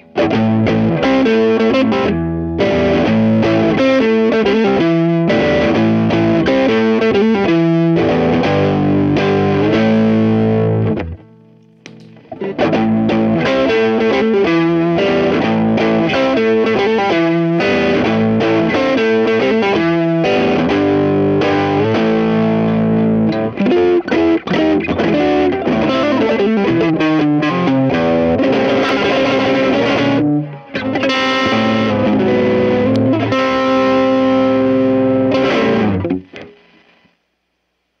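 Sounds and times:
distorted electric guitar: 0.0 - 37.2.

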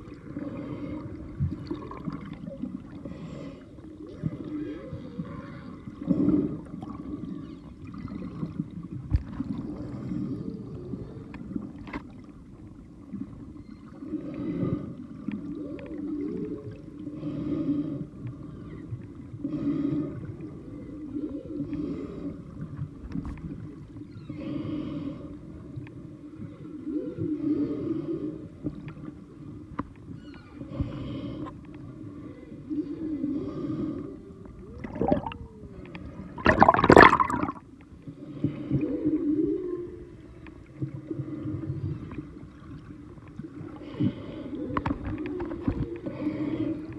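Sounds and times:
whales moaning underwater: 3.7 - 11.8, 12.5 - 22.8, 23.5 - 37.7, 38.3 - 46.9.

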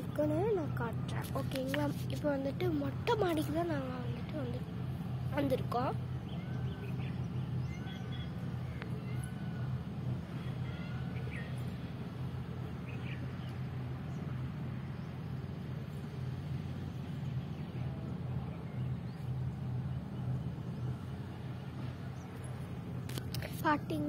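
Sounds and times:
faint bird calls: 6.2 - 12.0.

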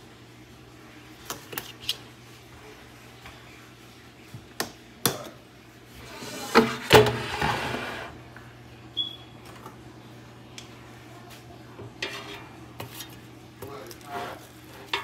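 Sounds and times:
drawer sliding scrape: 6.0 - 8.2.

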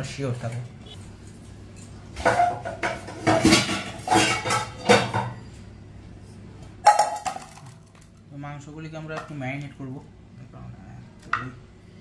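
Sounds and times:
kitchen bowls clattering: 2.2 - 5.4, 6.8 - 8.0.

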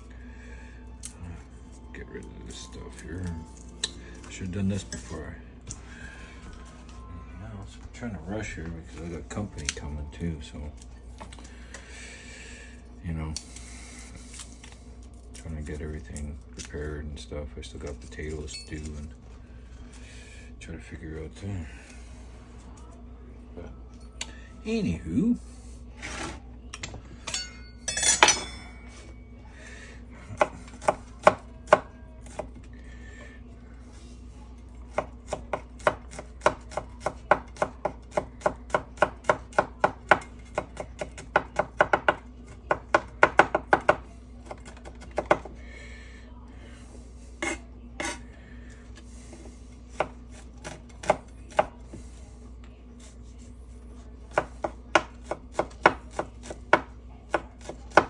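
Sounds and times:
knife clatter: 26.8 - 28.8
knife chopping on wooden board: 34.9 - 45.5, 54.3 - 58.0.

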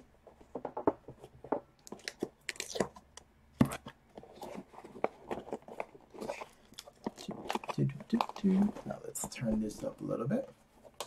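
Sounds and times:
cardboard crackling and scraping: 3.6 - 11.0.

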